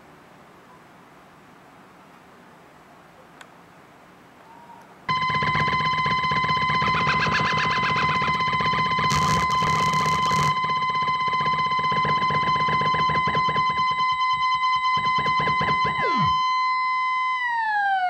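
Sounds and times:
buzzy pulsing synth tone: 0:05.1 - 0:18.0
swooping synth tones: 0:05.1 - 0:18.0.

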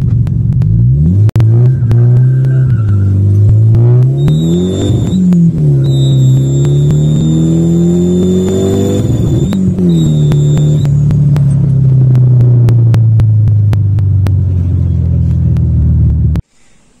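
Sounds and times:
car engine revving: 0:00.0 - 0:16.4
high steady turbo whistle: 0:04.1 - 0:11.0.

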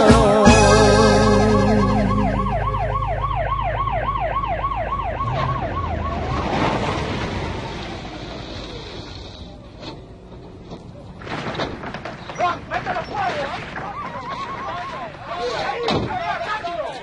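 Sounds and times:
fast wailing siren: 0:01.5 - 0:08.4, 0:13.8 - 0:15.2.

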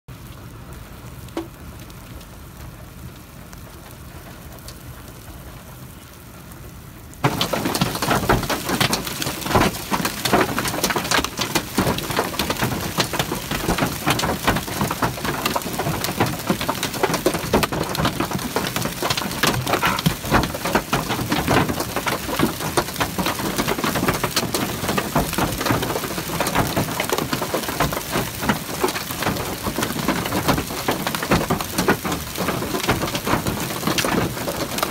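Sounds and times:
hail hitting a vehicle: 0:07.2 - 0:34.9.

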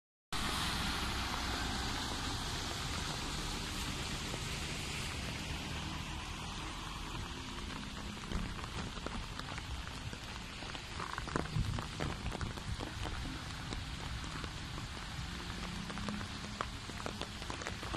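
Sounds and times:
steady rain on a flooded road: 0:00.4 - 0:17.9
water drips and splashes: 0:00.4 - 0:17.9.

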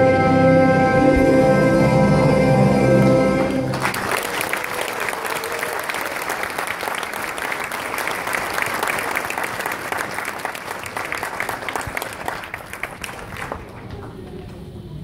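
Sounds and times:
large audience applauding: 0:03.4 - 0:14.5.

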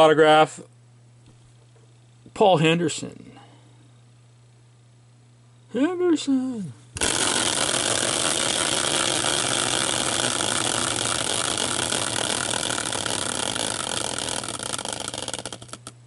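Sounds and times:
caster wheel whirring: 0:07.0 - 0:16.0.

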